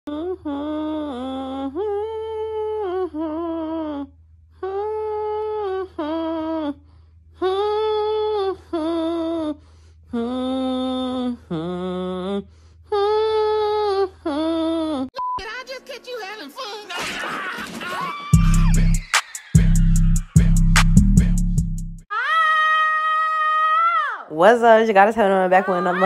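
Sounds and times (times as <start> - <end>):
woman humming a slow tune: 0.1 - 15.1.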